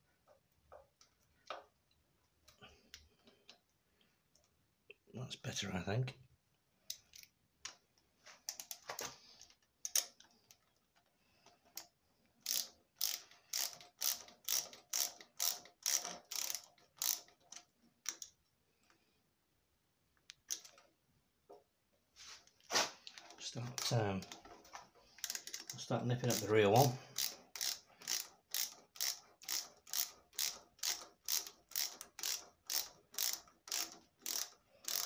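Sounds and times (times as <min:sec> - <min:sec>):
ratcheting spanner clicking: 0:09.4 - 0:10.6, 0:11.4 - 0:18.4, 0:25.2 - 0:35.0.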